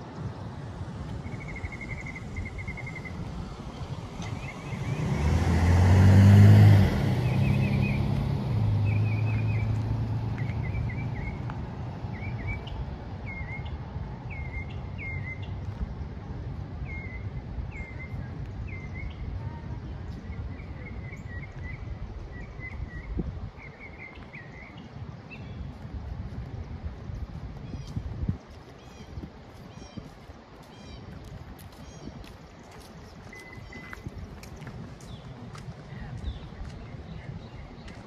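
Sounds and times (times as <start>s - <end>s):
bird chirping: 1.2s - 5.3s, 10.4s - 11.5s, 12.1s - 15.6s
vehicle driving past: 3.6s - 12.5s.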